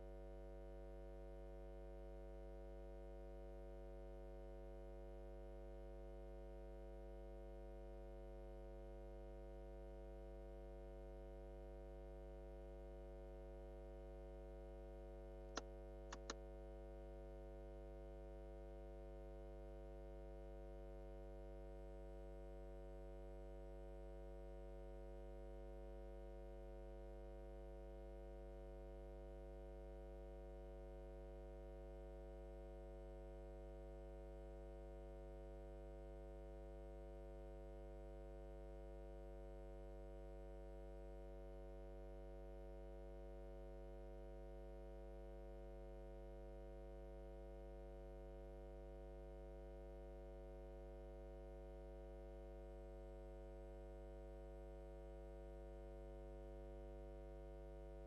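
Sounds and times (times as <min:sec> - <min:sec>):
short clicks: 0:15.6 - 0:16.4.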